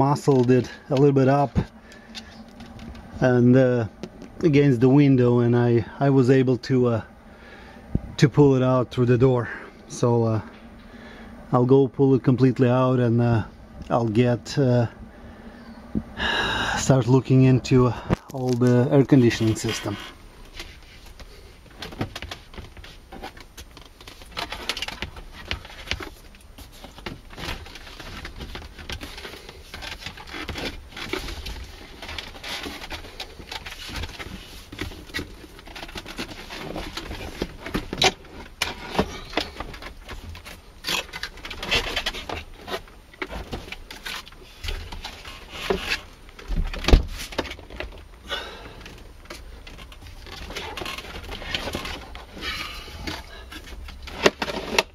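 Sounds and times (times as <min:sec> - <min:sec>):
plastic trim clicks and rustles: 0:18.1 - 0:48.2.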